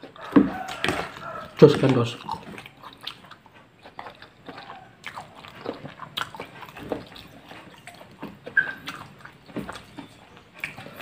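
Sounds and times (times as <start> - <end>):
person chewing and lip-smacking: 0.0 - 11.0
high squeak: 8.6 - 8.9.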